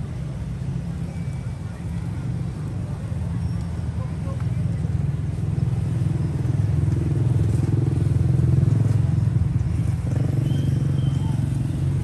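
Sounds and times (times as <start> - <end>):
engine running: 1.8 - 12.0.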